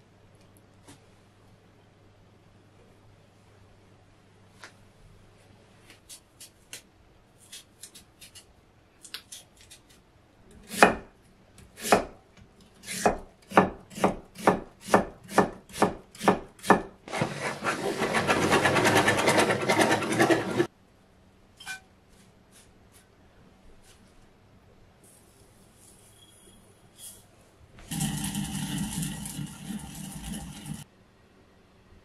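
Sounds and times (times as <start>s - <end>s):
knife chopping on cutting board: 10.6s - 11.1s, 12.9s - 16.9s.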